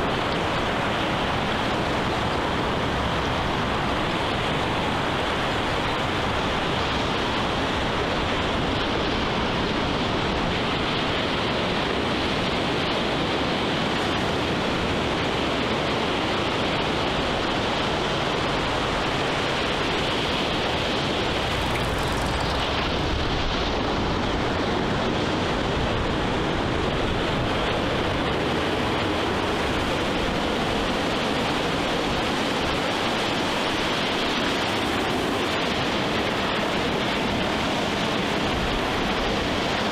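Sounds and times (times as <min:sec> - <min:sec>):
ocean surf rushing: 0:00.0 - 0:39.9.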